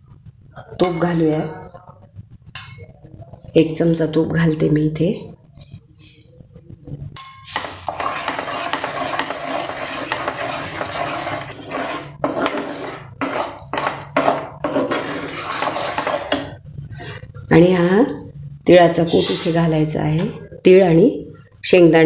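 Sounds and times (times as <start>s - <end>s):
spatula scraping frying pan: 7.5s - 17.2s
syrup bubbling and sizzling: 7.8s - 17.2s.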